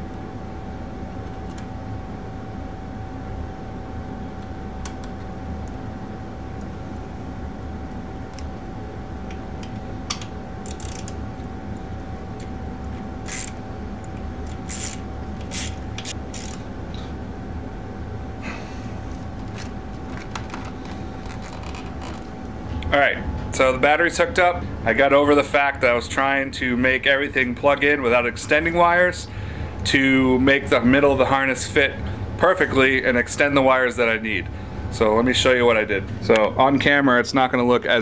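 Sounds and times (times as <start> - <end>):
steady hum: 0.0 - 38.0
ratchet wrench clicking: 10.1 - 11.2, 13.2 - 13.6, 14.5 - 16.6
wiring clicks and rustles: 19.1 - 22.5.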